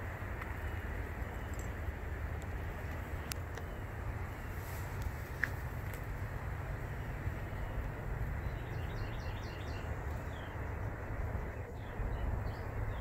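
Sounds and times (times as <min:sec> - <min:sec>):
steady low rumble: 0:00.0 - 0:13.0
bird chirping: 0:07.0 - 0:13.0.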